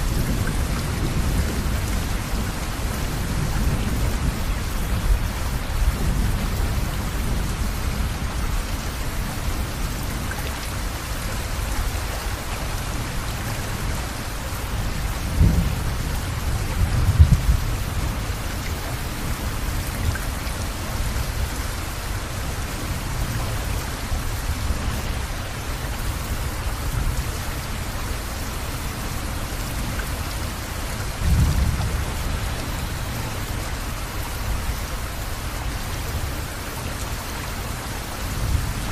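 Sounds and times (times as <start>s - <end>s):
steady rain: 0.0s - 38.9s
low thunder rumbling: 14.8s - 18.5s, 31.1s - 33.6s.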